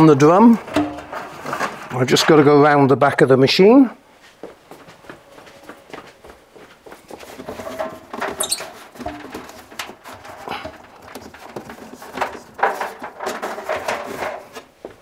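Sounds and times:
belt squeaks: 0:08.4 - 0:08.8.

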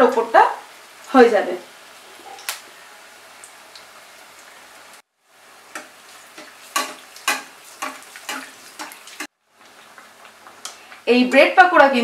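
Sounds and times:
food deep-frying in oil: 0:00.0 - 0:12.0
oil crackles and splashes: 0:02.4 - 0:11.1.

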